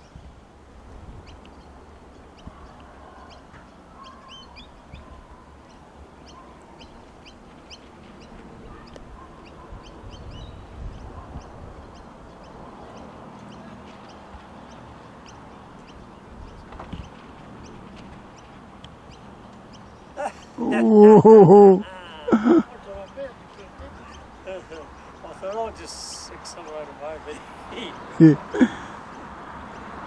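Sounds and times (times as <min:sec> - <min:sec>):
wind rumbling on microphone: 0:00.0 - 0:19.5.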